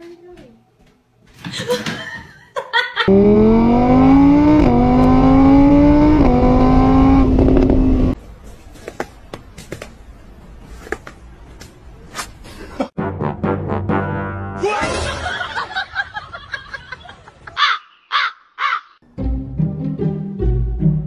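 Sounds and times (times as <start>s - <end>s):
motorbike engine revving: 3.1s - 8.2s.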